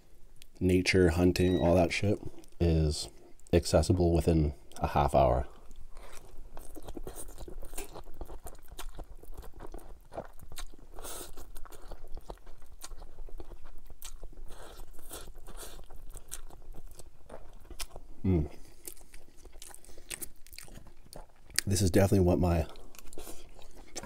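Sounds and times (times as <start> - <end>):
chewing and slurping noodles: 5.5 - 21.7, 22.7 - 24.0.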